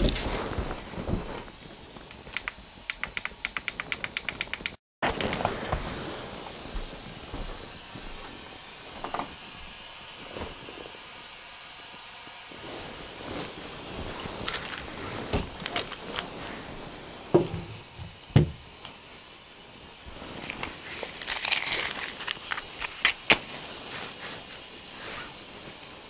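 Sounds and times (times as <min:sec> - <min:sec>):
crackling rustle: 0:00.0 - 0:18.0, 0:18.7 - 0:26.0
sharp clicks: 0:02.1 - 0:05.5
dull thumps: 0:17.4 - 0:18.7.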